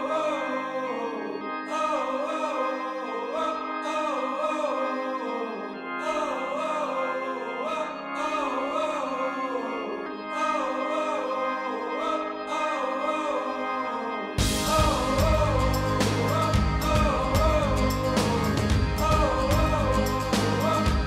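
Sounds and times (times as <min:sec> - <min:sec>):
melody over held chords: 0:00.0 - 0:21.0
soft high shimmer: 0:14.4 - 0:21.0.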